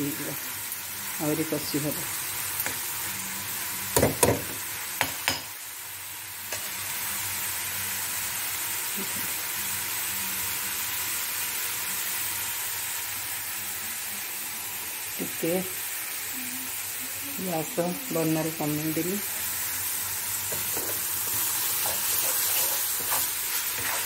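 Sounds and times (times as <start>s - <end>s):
food sizzling in oil: 0.0s - 24.0s
spatula scraping a pan: 20.5s - 24.0s.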